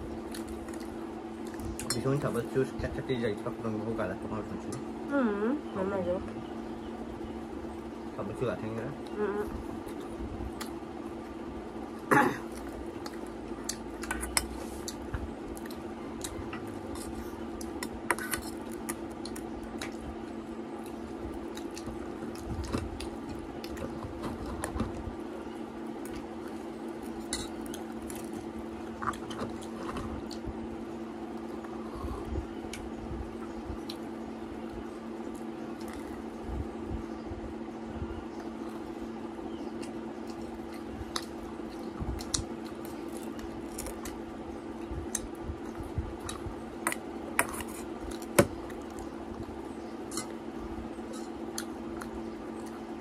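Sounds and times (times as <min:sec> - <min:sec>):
steady low hum: 0:00.0 - 0:53.0.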